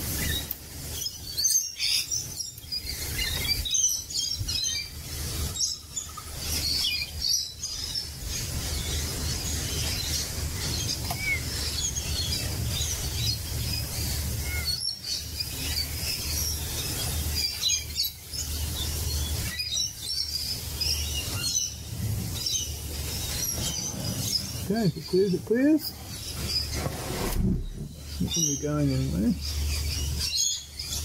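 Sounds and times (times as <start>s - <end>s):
parrots chirping: 0.0s - 31.0s.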